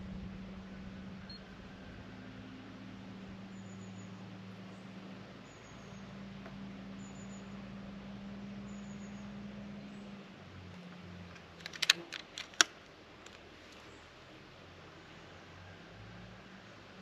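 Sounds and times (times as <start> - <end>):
faint steady low hum: 0.0 - 17.0
air rifle action clicks: 11.3 - 13.8.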